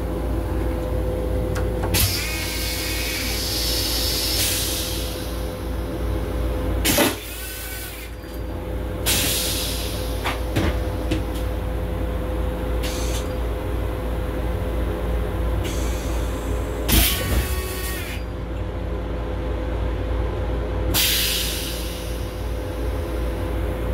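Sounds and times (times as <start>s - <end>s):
constant hum: 0.0s - 23.9s
railcar low rumble: 0.0s - 23.9s.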